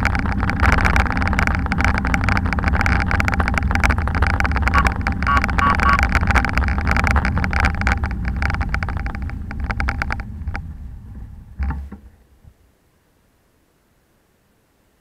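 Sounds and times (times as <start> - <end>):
bicycle freewheel clicking: 0.0 - 10.7
wind rumbling on microphone: 0.0 - 12.7.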